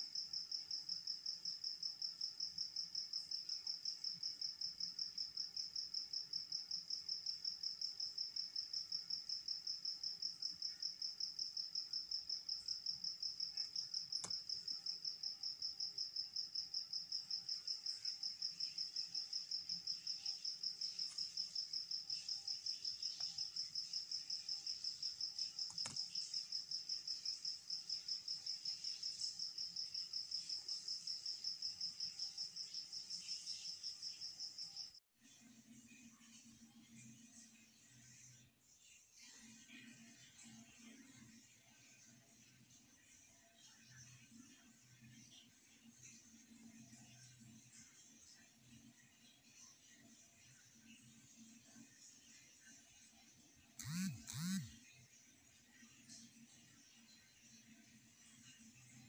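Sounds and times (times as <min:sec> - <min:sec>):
insect trilling: 0:53.8 - 0:54.7.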